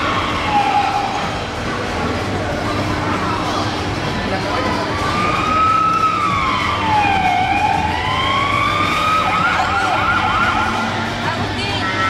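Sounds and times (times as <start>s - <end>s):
electronic siren wailing: 0.0s - 1.4s, 5.1s - 11.2s
arcade noise: 0.0s - 12.0s.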